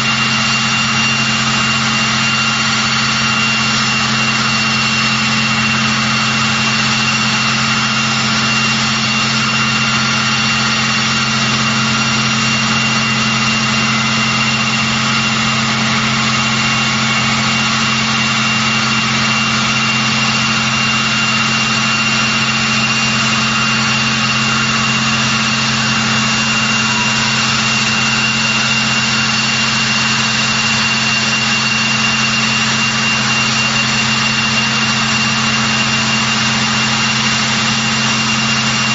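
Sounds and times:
turboprop engines running: 0.0s - 38.9s.

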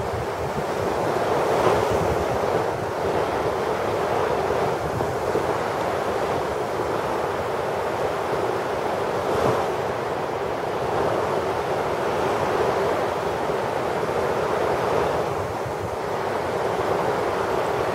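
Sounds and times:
wind buffeting microphone: 0.0s - 7.1s.

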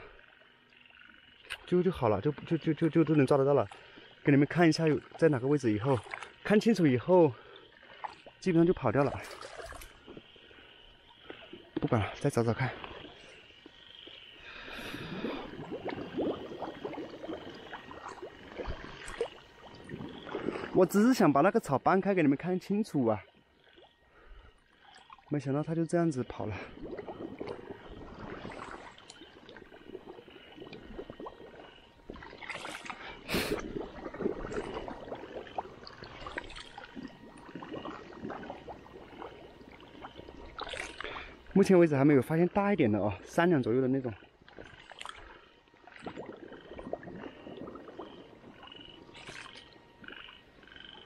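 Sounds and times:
muddy water sloshing: 0.8s - 51.0s
wading steps splashing in water: 4.7s - 6.4s, 7.9s - 10.3s, 14.6s - 21.3s, 32.1s - 39.4s, 40.0s - 41.3s, 45.9s - 50.2s.

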